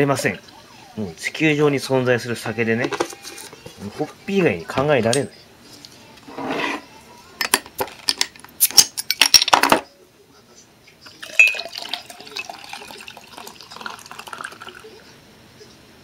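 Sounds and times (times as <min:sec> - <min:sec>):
glass bottle clinking: 0:11.1 - 0:14.8
fizzing drink pour: 0:11.1 - 0:15.1.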